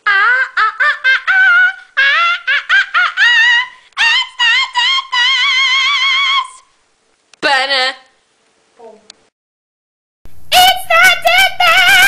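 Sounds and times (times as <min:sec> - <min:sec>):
girl singing high wordless tune: 0:00.0 - 0:06.7, 0:10.5 - 0:12.0.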